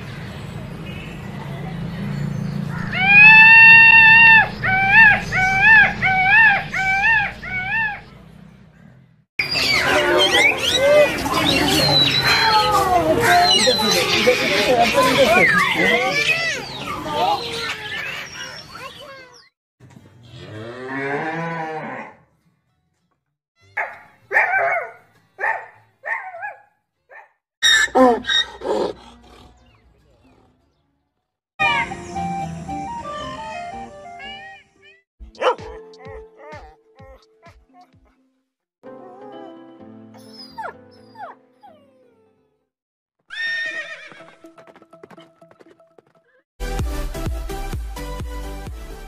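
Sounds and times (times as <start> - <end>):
dogs barking: 2.7 - 8.1, 23.8 - 29.6, 35.4 - 37.6
peacock calling: 2.7 - 8.1
cow mooing: 20.3 - 22.2.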